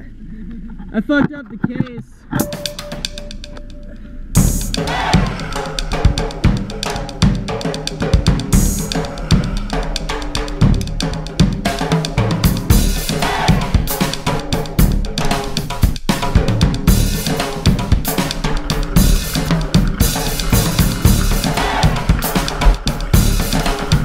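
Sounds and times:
bass line: 2.3 - 24.0
music with drum kit beat: 2.4 - 3.6, 4.4 - 24.0.

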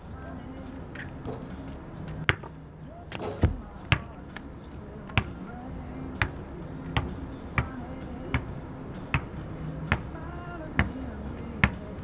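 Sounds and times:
basketball bouncing on court floor: 3.1 - 4.2.

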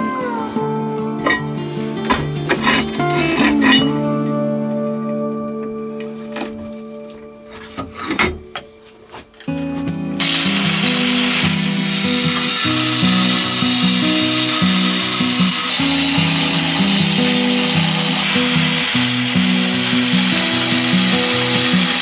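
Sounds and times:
background music: 0.0 - 22.0
angle grinder cutting steel: 2.1 - 3.9, 10.2 - 22.0.

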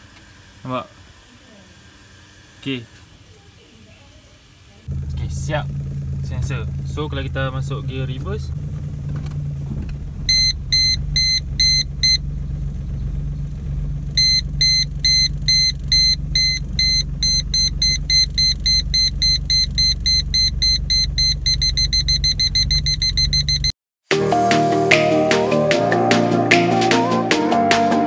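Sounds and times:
car engine idling: 4.8 - 23.6
parking sensor beeping: 10.2 - 13.0, 14.1 - 23.7
music: 24.1 - 28.0.

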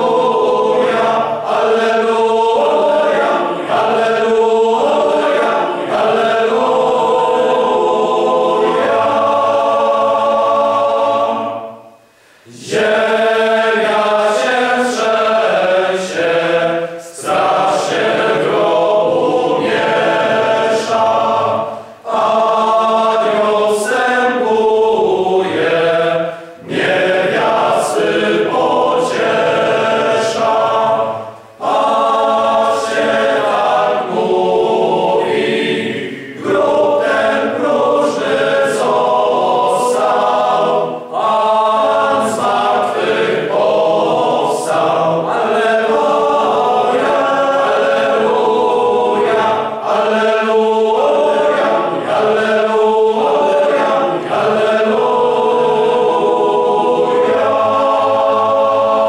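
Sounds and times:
male choir singing a hymn: 0.0 - 59.0
singers breathing: 12.0 - 12.6, 21.7 - 22.0, 26.3 - 26.6.

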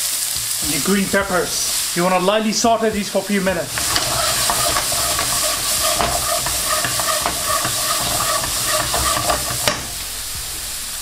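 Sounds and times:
vegetables sizzling in hot oil: 0.0 - 11.0
spoon scraping and knocking pan: 3.7 - 10.0.

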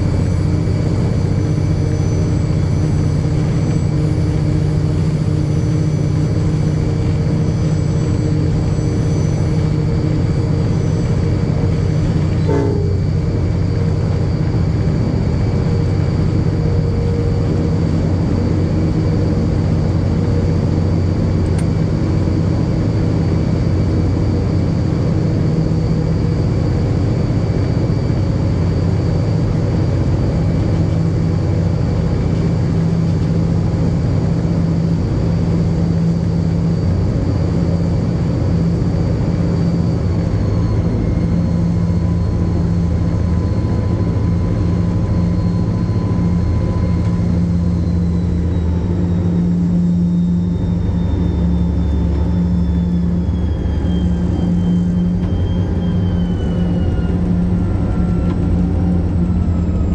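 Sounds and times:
faint high whine: 0.0 - 59.9
locomotive engine drone: 0.0 - 59.9.

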